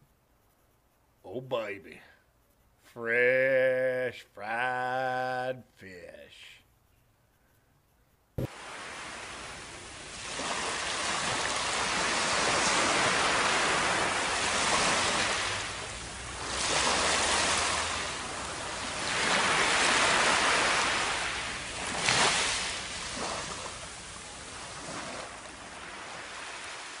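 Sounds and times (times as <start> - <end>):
waves washing on sandy beach: 8.4 - 27.0.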